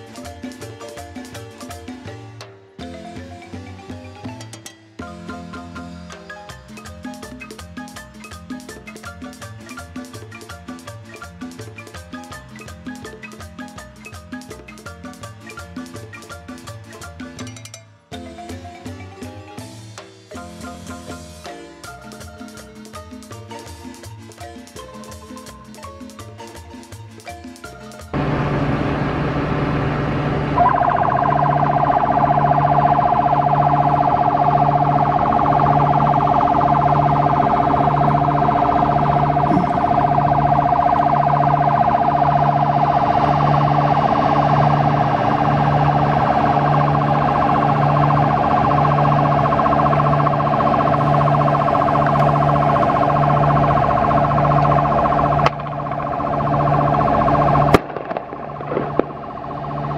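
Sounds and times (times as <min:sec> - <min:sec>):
electronic siren steady tone: 0:28.2 - 0:59.9
low repeating pulse: 0:28.2 - 0:59.9.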